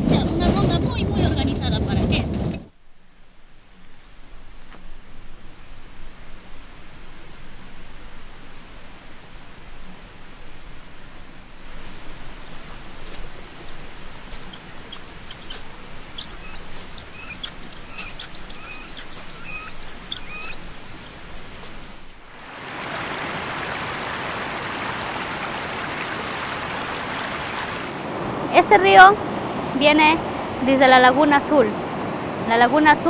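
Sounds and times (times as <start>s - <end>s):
outdoor hiss: 2.7s - 33.0s
river rushing: 3.6s - 33.0s
birds chirping and whistling: 12.4s - 22.3s.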